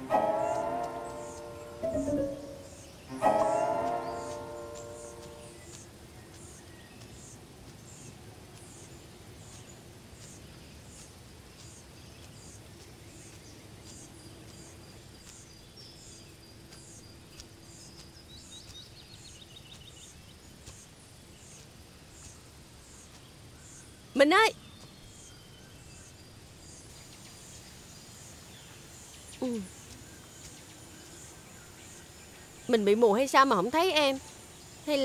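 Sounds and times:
bird trill: 0.0s - 5.8s
background hiss: 0.0s - 35.0s.

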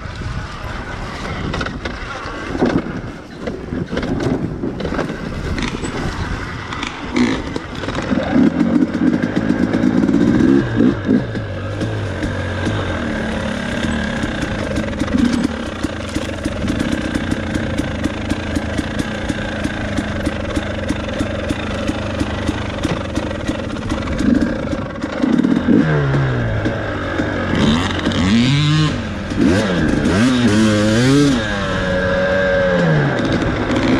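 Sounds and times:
clicks and clatter: 1.2s - 10.4s, 13.8s - 28.4s, 32.7s - 33.9s
dirt bike engine revving: 3.8s - 33.9s.

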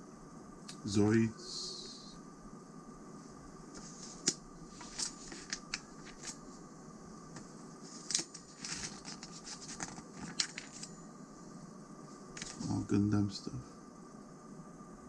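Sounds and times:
magazine pages rustling: 3.8s - 6.5s, 7.9s - 11.0s, 12.4s - 12.8s.

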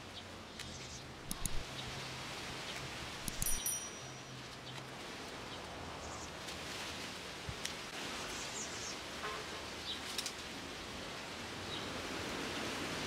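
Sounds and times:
small clicks: 0.6s - 1.6s, 3.2s - 4.1s.

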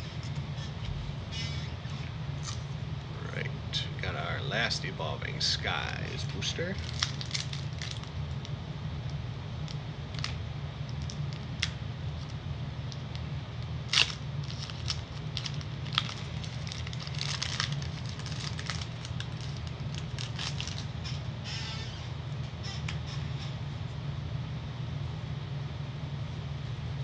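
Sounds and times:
steady low hum: 0.0s - 27.0s
foil wrapper crinkling and tearing: 6.5s - 8.6s, 9.6s - 13.2s, 13.8s - 22.0s.

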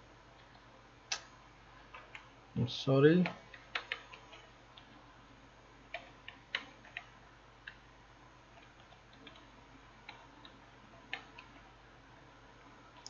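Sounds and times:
faint keyboard clicks: 3.2s - 4.9s, 5.9s - 7.8s, 8.5s - 11.7s.

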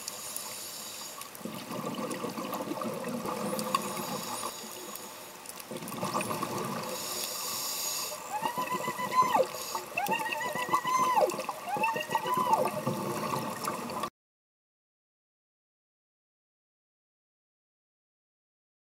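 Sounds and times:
regulator bubbles gurgling underwater: 1.1s - 14.1s.

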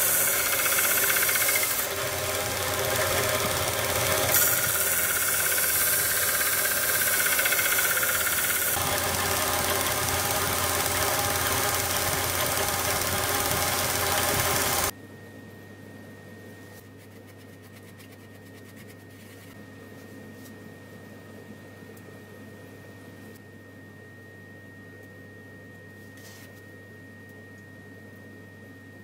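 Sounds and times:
belt sander grinding knife: 0.0s - 14.9s.

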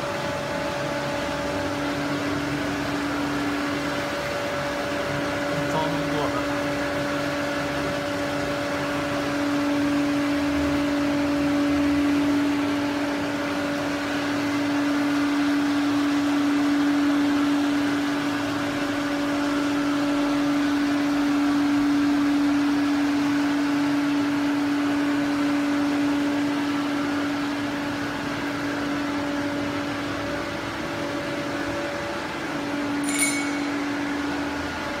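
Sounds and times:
machine hum: 0.0s - 35.0s
sharp click: 33.0s - 33.9s.

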